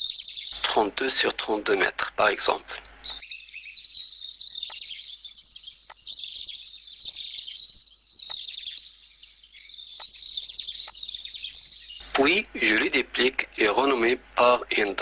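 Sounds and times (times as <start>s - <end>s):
small birds chirping: 0.0s - 15.0s
sharp clicks: 2.8s - 3.2s.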